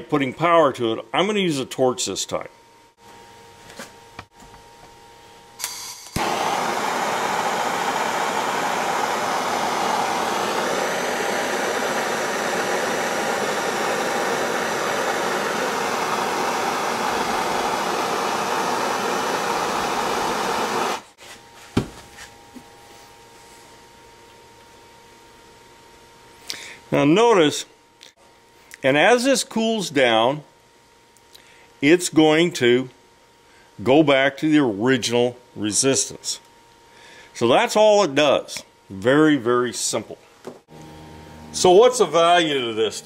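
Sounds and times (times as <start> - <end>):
gas torch hissing: 5.6 - 21.1.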